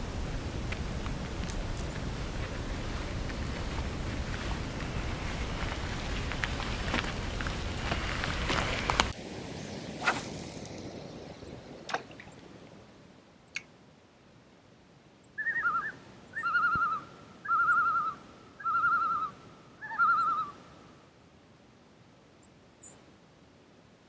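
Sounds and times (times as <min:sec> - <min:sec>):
loon tremolo call: 0:15.4 - 0:20.6.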